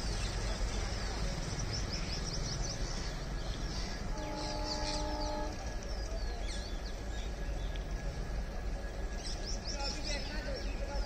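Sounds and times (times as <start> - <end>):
birds chirping: 0.0 - 11.0
locomotive horn: 4.1 - 5.8.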